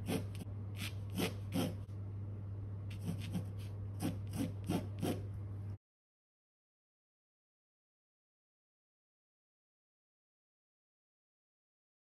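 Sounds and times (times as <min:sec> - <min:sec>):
pencil scratching on canvas: 0:00.0 - 0:01.9, 0:02.9 - 0:05.3
steady low hum: 0:00.0 - 0:05.8.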